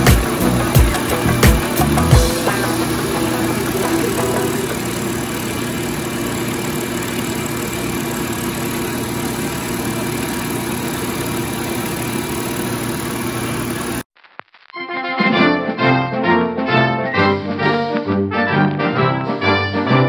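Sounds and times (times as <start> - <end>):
milling machine cutting metal: 0.0 - 14.0.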